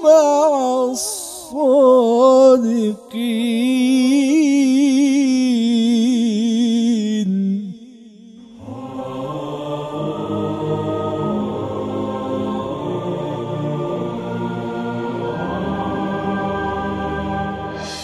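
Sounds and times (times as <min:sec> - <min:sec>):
person reciting melodically: 0:00.0 - 0:07.8, 0:17.8 - 0:18.0
low chant-like sound: 0:00.0 - 0:18.0.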